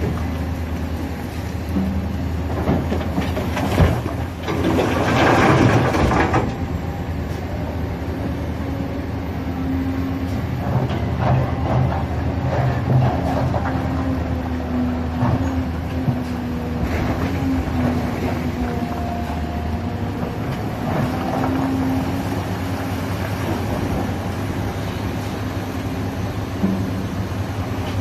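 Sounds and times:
excavator diesel engine running: 0.0 - 28.0
bucket working rock pile: 1.5 - 6.7.

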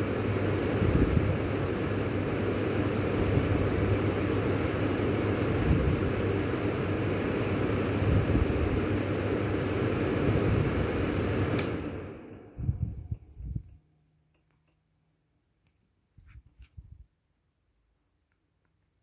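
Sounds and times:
exhaust fan running: 0.0 - 14.2
sharp click: 11.6 - 11.8.

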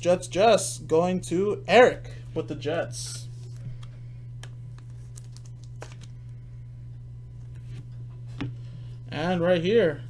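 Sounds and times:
low hum: 0.0 - 10.0
card sliding into plastic sleeve: 4.8 - 6.2.

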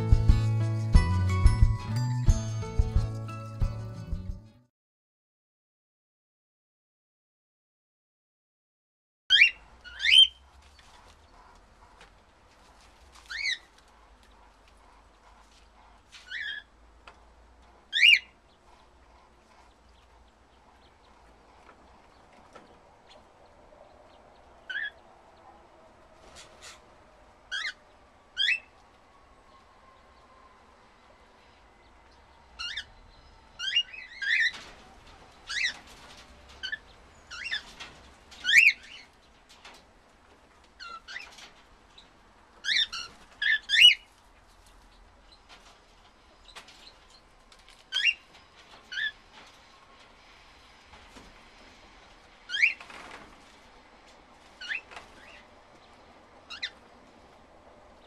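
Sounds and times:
cockatiels chirping: 9.3 - 10.4, 13.3 - 13.7, 16.2 - 16.7, 17.9 - 18.3, 32.6 - 32.9, 38.4 - 39.1, 40.8 - 41.4, 42.6 - 44.1, 47.7 - 48.3, 52.5 - 52.8, 54.6 - 55.4, 56.5 - 56.8.

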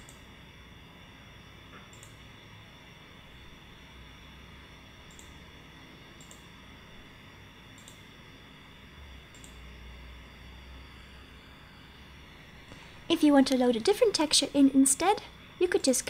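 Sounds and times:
computer whirring hum: 0.0 - 16.0
faint high steady tones: 0.0 - 16.0
short clicks: 5.1 - 5.4, 6.2 - 6.5, 7.7 - 8.0, 9.3 - 9.6.

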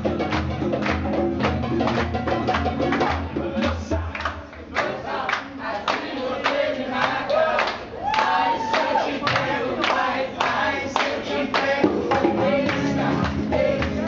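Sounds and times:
acoustic guitar: 0.0 - 4.3, 11.7 - 14.0
hands clapping in time: 0.3 - 11.7
people singing along: 3.2 - 14.0.

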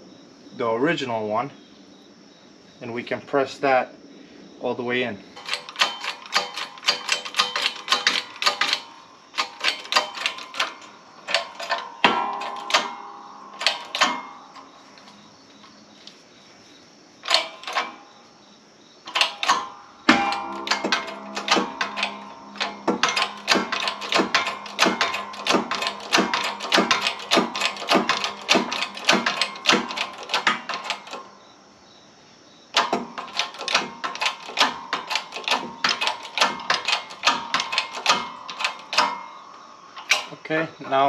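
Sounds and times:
ratchet clicking: 5.4 - 15.1, 17.2 - 18.0, 19.1 - 31.3, 32.8 - 39.3.

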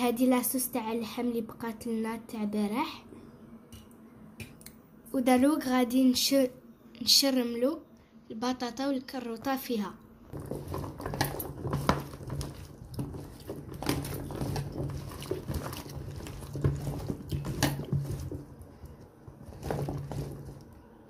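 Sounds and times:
wet squelching of vegetables: 10.3 - 20.8.

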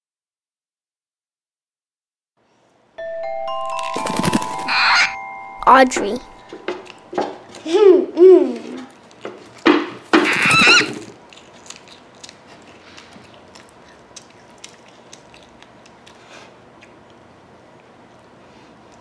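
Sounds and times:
mouth sounds while nibbling: 10.2 - 19.0.

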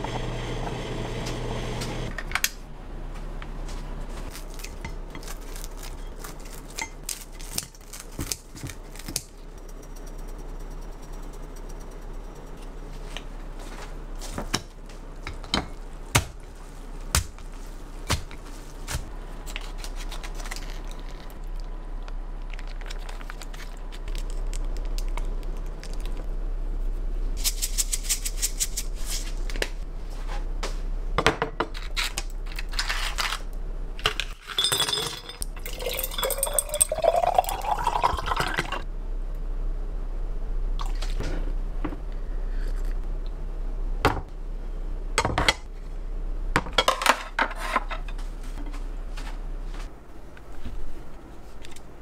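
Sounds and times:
liquid pouring into container: 35.5 - 38.8.

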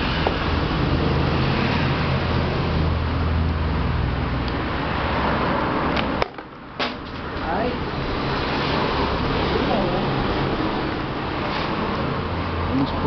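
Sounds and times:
rushing noise: 0.0 - 6.2.

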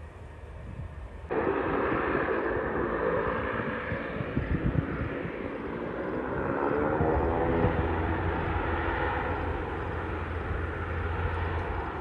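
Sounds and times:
distant jet engines: 0.0 - 12.0.

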